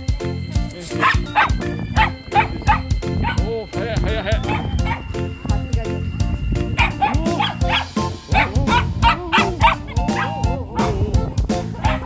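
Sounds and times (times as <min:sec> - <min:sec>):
background music with beat: 0:00.0 - 0:12.0
dogs barking: 0:00.9 - 0:05.3, 0:06.6 - 0:11.0, 0:11.7 - 0:12.0.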